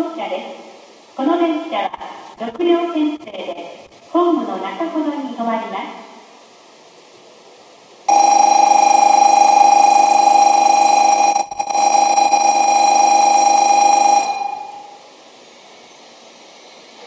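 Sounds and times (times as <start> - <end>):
ringing warning signal: 8.1 - 15.0.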